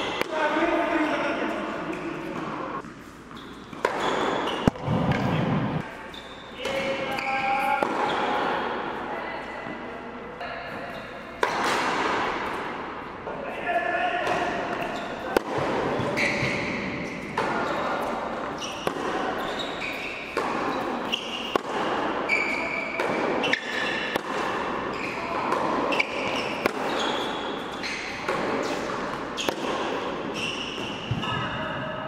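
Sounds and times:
rackets striking tennis ball: 0.0 - 9.0, 10.6 - 13.2, 14.2 - 31.6
tennis ball bouncing: 1.9 - 5.9, 6.6 - 8.5, 11.3 - 12.7, 14.2 - 31.4.

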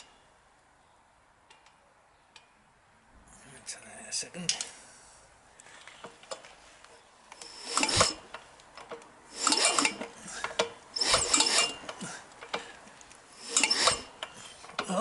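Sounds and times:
motorcycle engine kickstarted: 7.4 - 8.3, 9.3 - 12.7.

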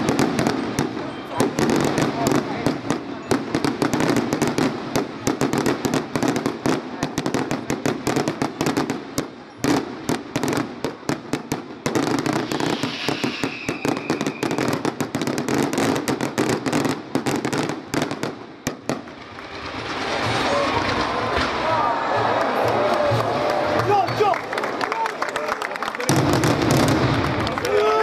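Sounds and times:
fireworks bangs and crackling: 0.0 - 24.7, 25.8 - 28.0
falling firework whistle: 12.0 - 14.9.

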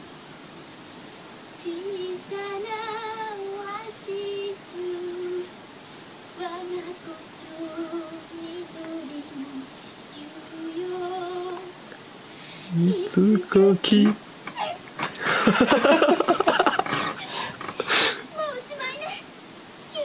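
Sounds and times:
woman singing unaccompanied: 1.5 - 5.6, 6.3 - 12.0, 12.6 - 14.8, 18.2 - 20.0.

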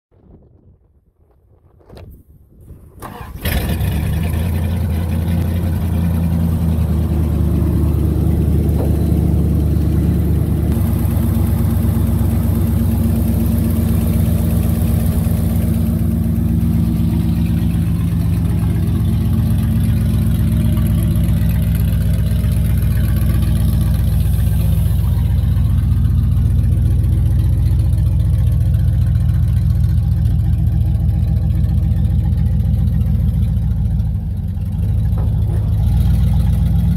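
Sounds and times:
truck engine starting: 2.5 - 36.9
truck engine idling: 2.8 - 36.9.

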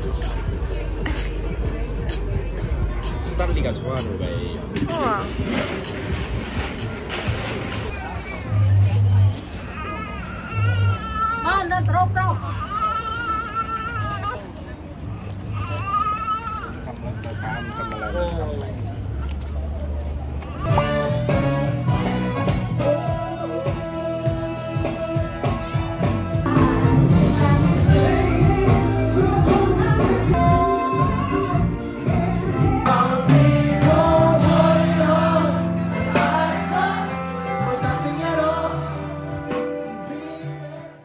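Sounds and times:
live band with keyboard: 20.3 - 41.0
person singing: 22.4 - 41.0.

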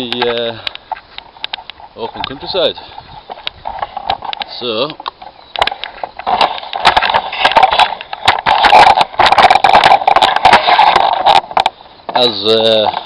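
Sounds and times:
camera handling noise: 3.2 - 11.8.

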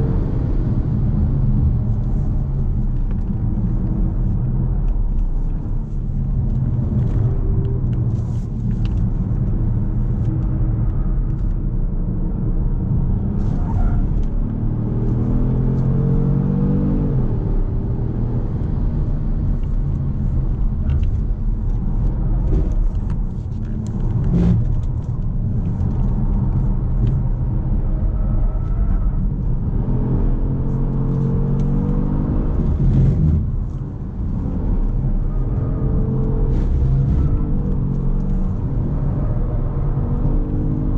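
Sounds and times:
car engine accelerating hard: 13.3 - 40.9.

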